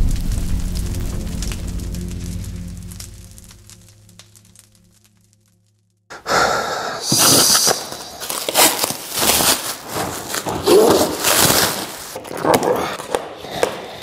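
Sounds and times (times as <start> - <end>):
plastic film crinkling and ripping: 7.0 - 14.0.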